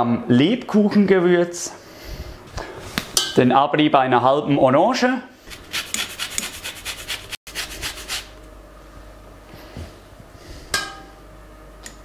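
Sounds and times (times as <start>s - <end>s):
zest grater scraping: 5.5s - 8.3s.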